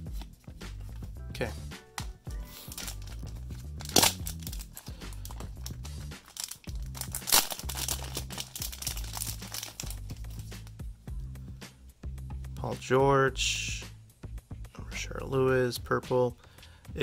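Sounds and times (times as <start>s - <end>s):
background music: 0.0s - 17.0s
card pack wrapper crinkling and tearing: 2.6s - 10.7s.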